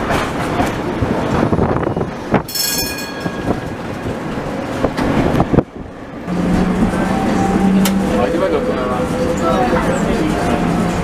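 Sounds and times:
tram rumbling along track: 0.0 - 11.0.

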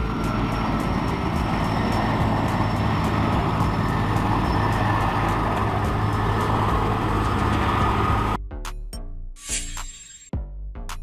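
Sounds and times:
helicopter engine and rotor noise: 0.0 - 8.4
thin high whine: 9.4 - 10.3.

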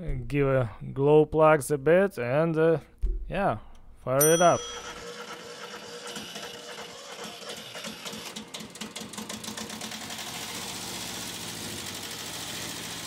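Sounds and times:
diesel engine starting and idling: 4.9 - 13.0.

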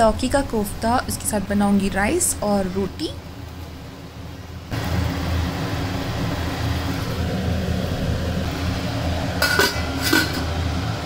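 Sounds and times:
steady low hum: 0.0 - 11.0
metal lid clinking on pan: 9.4 - 10.5.

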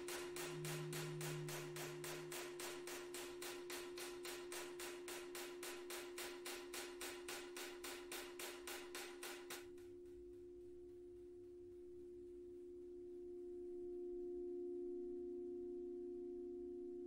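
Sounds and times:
gong ringing: 0.0 - 8.3
hammer tap on metal: 0.0 - 9.9.

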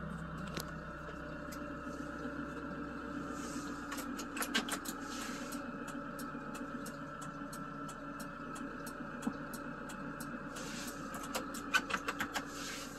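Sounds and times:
diesel engine idling: 0.0 - 12.9
faint regular ticking: 5.5 - 12.3.

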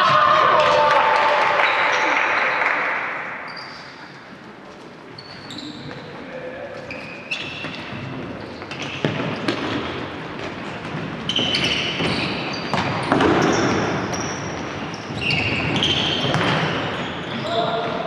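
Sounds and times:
sneakers squeaking on wooden floor: 3.4 - 4.2, 5.0 - 18.0.

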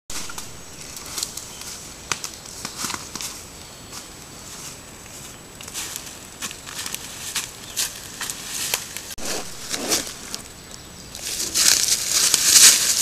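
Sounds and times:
twigs crackling underfoot: 0.1 - 13.0
footsteps rustling in dry leaves: 2.7 - 13.0.

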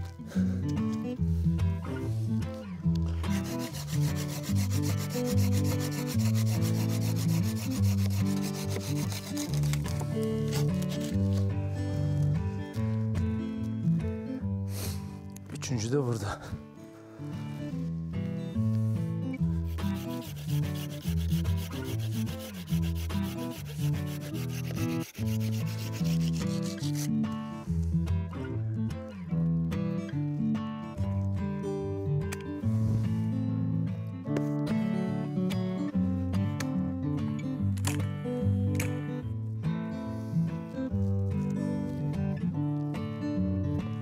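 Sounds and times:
guitar music: 0.0 - 44.0
saw rasping through wood: 3.2 - 11.4, 19.6 - 27.1.

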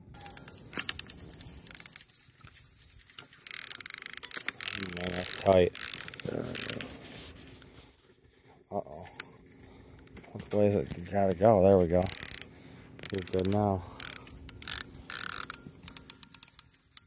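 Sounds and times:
fishing reel ratchet clicking: 0.4 - 6.9, 11.8 - 17.0.

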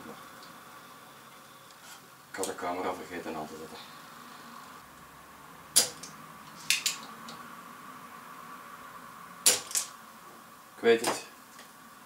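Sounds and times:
faint steady whine: 0.0 - 12.0.

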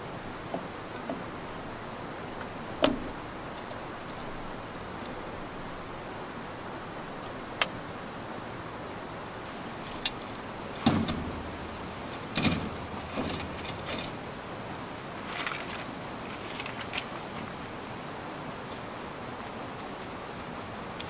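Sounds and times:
frame parts clicking into place: 9.8 - 14.2
metal frame clunks and rattles: 9.9 - 14.2.

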